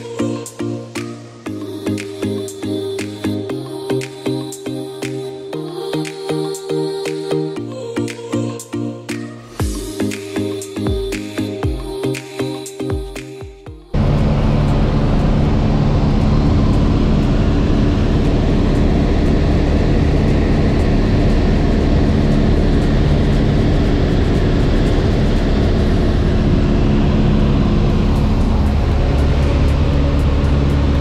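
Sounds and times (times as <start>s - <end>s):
aircraft engine and propeller drone: 13.9s - 31.0s.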